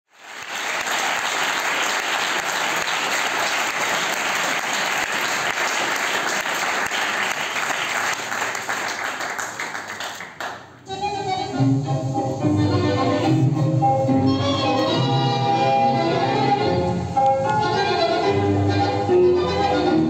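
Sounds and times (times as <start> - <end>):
audience applauding: 0.1 - 10.7.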